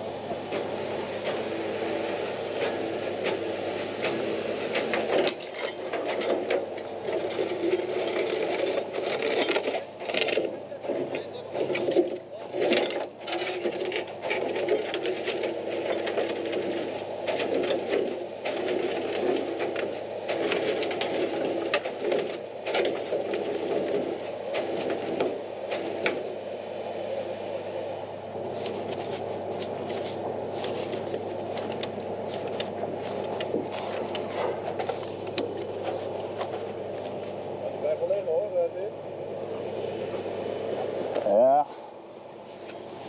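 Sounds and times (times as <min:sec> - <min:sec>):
truck engine idling: 0:00.0 - 0:43.0
metal clanks and knocks: 0:04.0 - 0:26.2.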